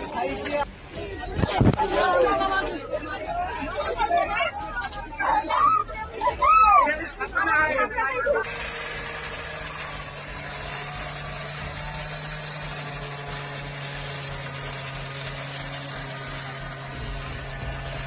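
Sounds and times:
low mechanical hum: 8.4 - 18.0.

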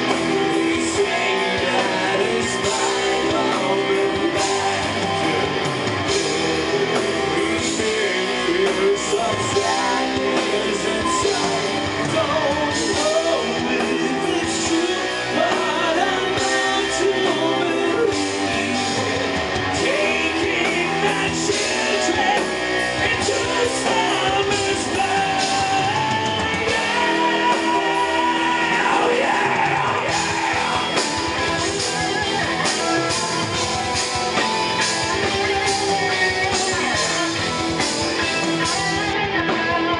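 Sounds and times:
live metal band: 0.0 - 39.9
singer's vocals: 0.0 - 39.9.

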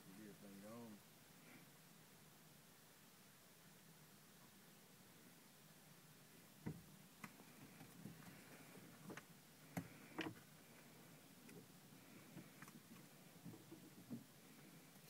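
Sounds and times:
faint sharp clicks and taps: 6.6 - 8.4.

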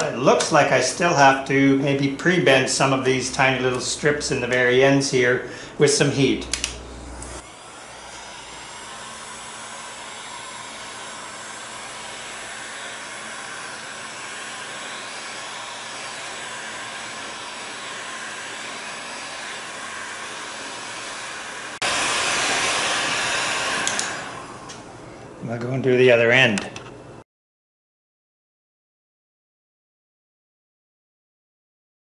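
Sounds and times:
heat gun blowing: 5.4 - 25.1.

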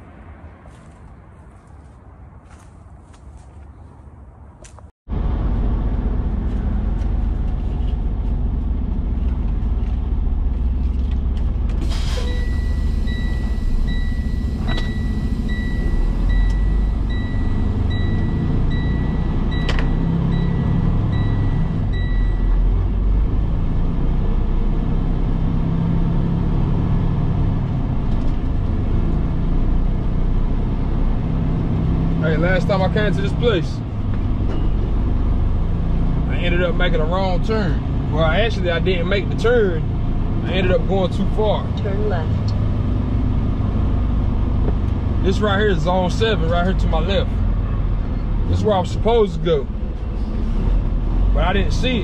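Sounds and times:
truck engine and road rumble: 0.0 - 52.0
in-cab chime beeping: 12.2 - 22.6.

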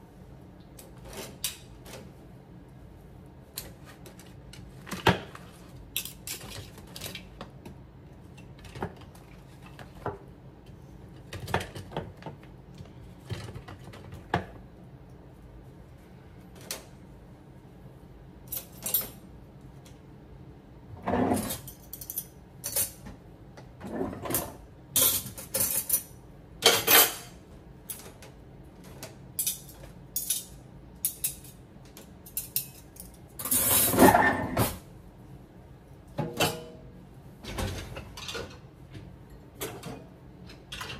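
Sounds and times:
silverware jangling: 21.6 - 23.0
cutlery and dishes clinking: 25.0 - 27.3.

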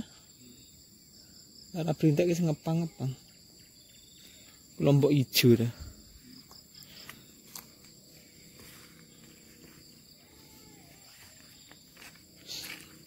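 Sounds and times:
crickets chirping: 0.0 - 13.0
footsteps on dirt path: 6.4 - 13.0.

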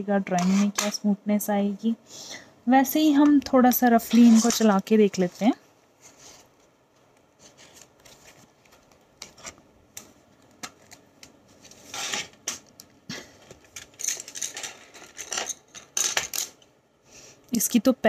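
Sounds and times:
pencils clicking and clinking: 4.0 - 4.8, 13.5 - 16.6.

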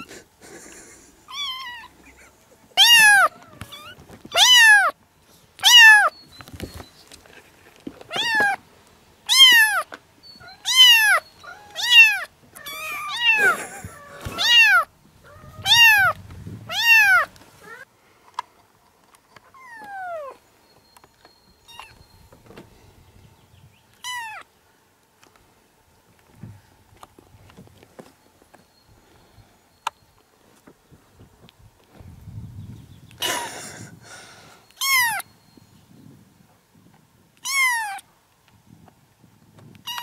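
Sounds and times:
kitten meowing: 1.3 - 1.9, 2.8 - 5.0, 5.6 - 6.1, 8.1 - 8.6, 9.3 - 17.8, 24.0 - 24.4, 34.8 - 35.2, 37.4 - 38.0.

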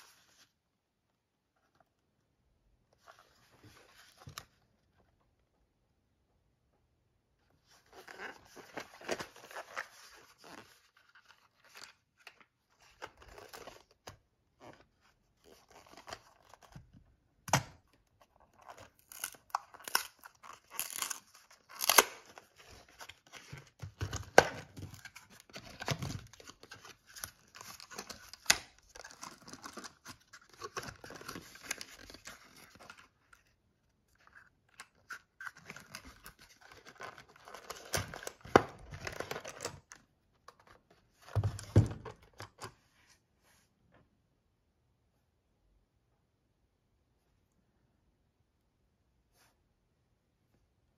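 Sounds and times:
cardboard tearing and crinkling: 18.6 - 33.0.

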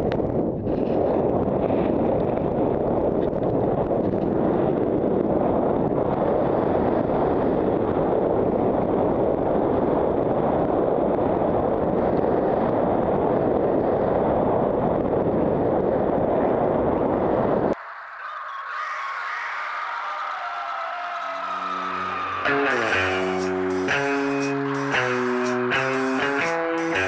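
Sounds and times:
wind rushing over microphone: 0.0 - 17.8.

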